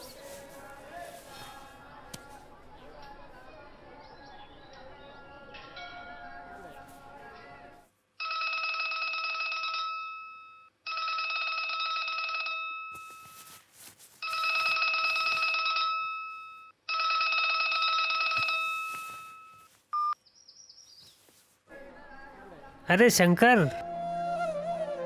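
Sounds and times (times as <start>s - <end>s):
bell-like phone ringtone: 8.2s - 13.6s, 14.2s - 20.2s.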